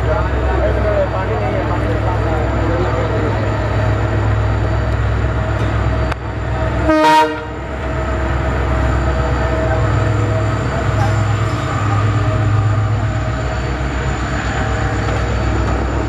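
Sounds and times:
locomotive engine rumbling: 0.0s - 16.0s
train horn blast: 6.8s - 7.6s.

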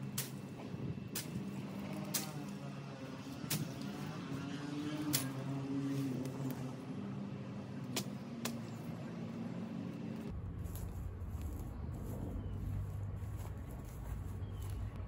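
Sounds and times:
machete striking brush: 0.0s - 0.5s, 1.1s - 2.6s, 3.4s - 4.0s, 5.0s - 5.5s
low engine-like hum: 0.0s - 15.0s
steady low rumble: 10.2s - 15.0s.

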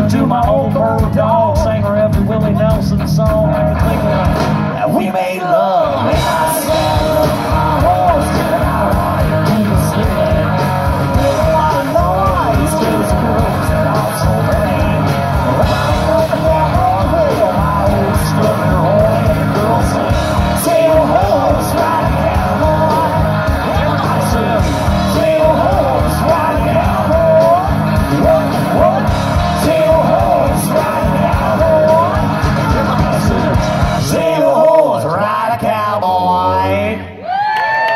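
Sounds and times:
live rock band playing: 0.0s - 34.8s
person singing: 0.0s - 37.5s.

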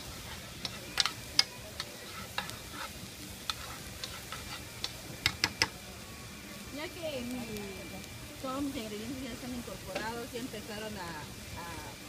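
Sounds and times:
vegetables sizzling in oil: 0.0s - 12.0s
metal spoon clicking on pan: 0.6s - 2.6s.

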